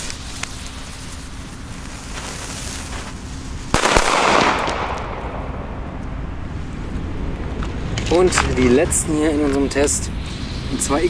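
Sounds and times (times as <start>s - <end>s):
firecracker fuse fizzing: 0.0s - 5.1s, 9.3s - 11.0s
firecracker bang: 1.8s - 5.9s
crack: 2.1s - 6.2s.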